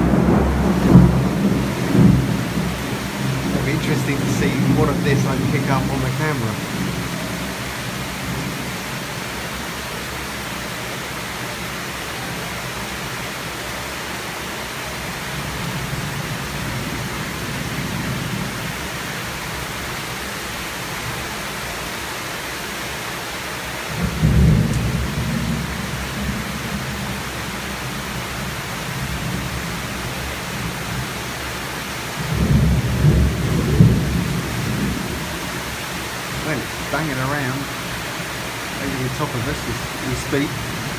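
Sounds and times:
thunder rumbling: 0:00.0 - 0:09.0, 0:23.9 - 0:31.1, 0:32.2 - 0:40.9
heavy rain falling: 0:00.0 - 0:40.9.

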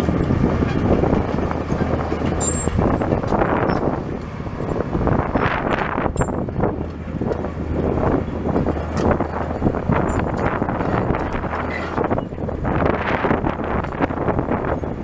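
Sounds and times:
excavator diesel engine under load: 0:00.0 - 0:15.0.

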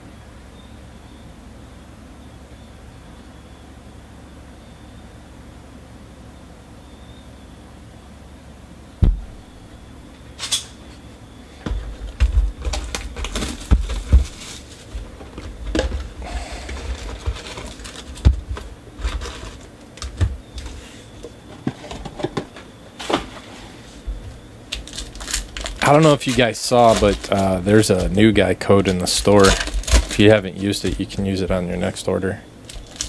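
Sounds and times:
knock on cardboard box: 0:09.0 - 0:09.3
foil packs rustling: 0:11.6 - 0:33.0.

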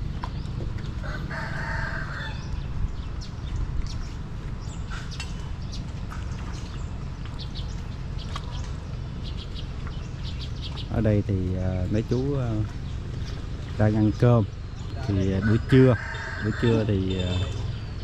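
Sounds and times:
steady low rumble: 0:00.0 - 0:18.0
rooster crowing: 0:01.0 - 0:02.5, 0:15.4 - 0:16.9.

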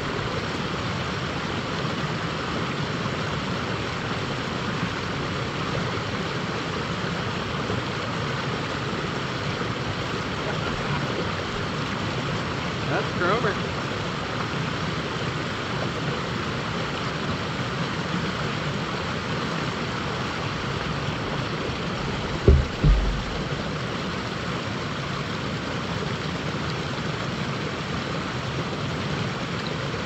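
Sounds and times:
river water rushing over rocks: 0:00.0 - 0:30.0
low thumps: 0:20.5 - 0:24.0.

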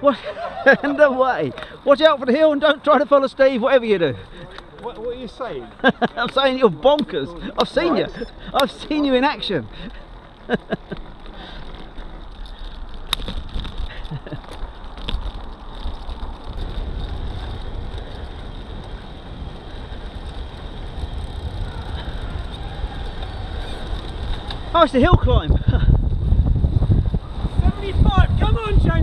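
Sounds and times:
bicycle tyre rumble: 0:00.0 - 0:29.0
wind buffeting microphone: 0:06.5 - 0:29.0.

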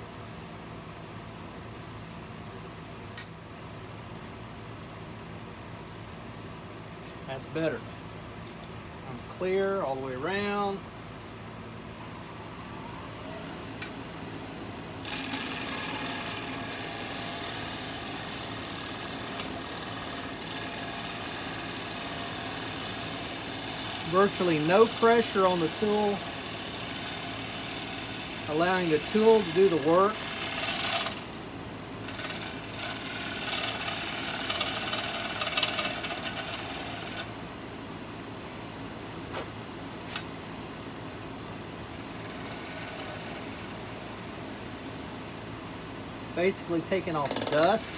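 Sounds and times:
wood shavings hissing: 0:15.0 - 0:31.2
wood lathe running: 0:15.0 - 0:31.4, 0:32.0 - 0:37.3, 0:42.1 - 0:44.1, 0:46.6 - 0:47.9.

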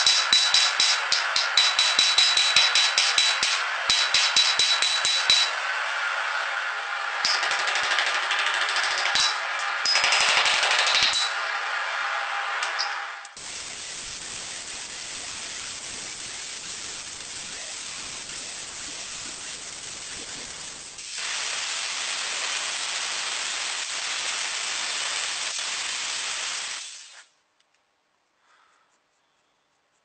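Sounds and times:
grinder cutting steel: 0:00.0 - 0:06.0, 0:12.6 - 0:27.3
hissing of steel being worked: 0:13.4 - 0:27.3.

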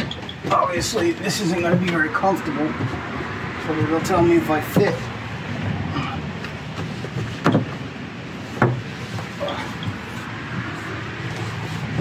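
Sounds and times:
knocks on wooden platform: 0:08.6 - 0:08.9.

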